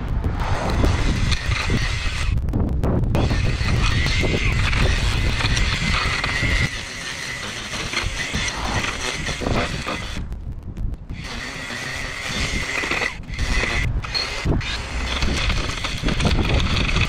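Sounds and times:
string trimmer cutting grass: 0.6s - 2.4s, 3.2s - 10.3s, 11.1s - 17.0s.

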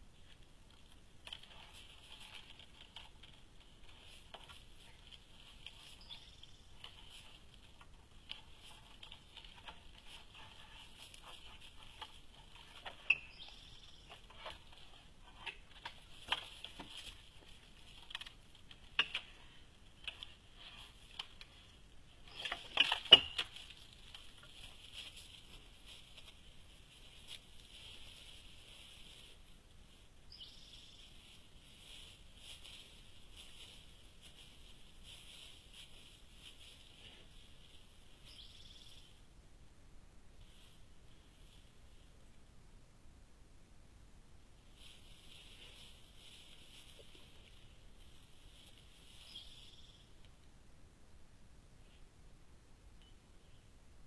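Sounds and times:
bear knocking and rustling: 0.2s - 29.6s.

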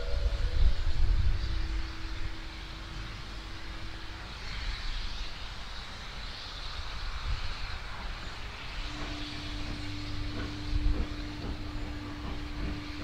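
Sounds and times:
faint whistle-like tone: 0.0s - 5.5s
steady hiss: 0.0s - 13.0s
steam locomotive rumble: 0.0s - 13.0s.

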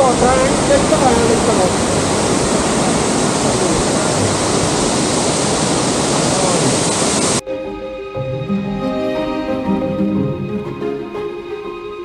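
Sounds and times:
waterfall roaring: 0.0s - 7.4s
soft music: 7.4s - 12.0s.

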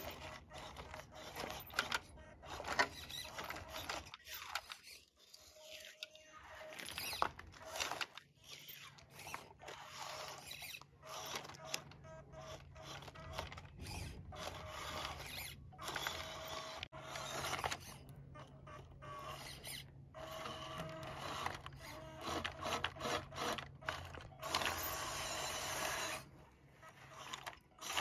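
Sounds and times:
small electric motors whirring: 0.0s - 28.0s.

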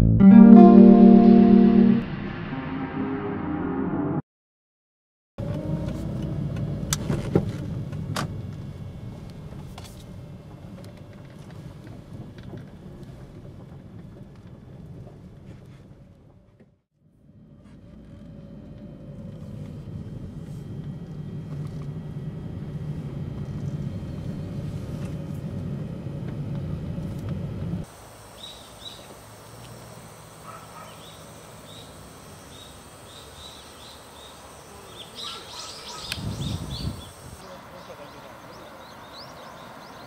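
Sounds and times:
car engine and tyre rumble: 5.4s - 40.0s
steady high whine: 19.1s - 38.3s.

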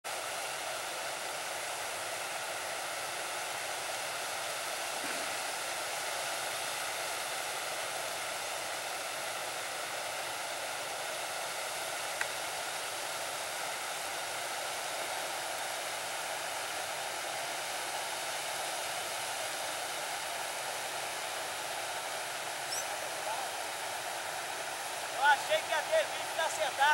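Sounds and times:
water spilling over rocks: 20.1s - 26.9s.

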